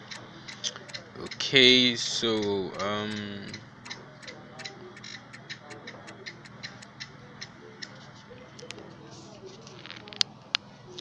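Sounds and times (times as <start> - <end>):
clock ticking: 0.0 - 7.1.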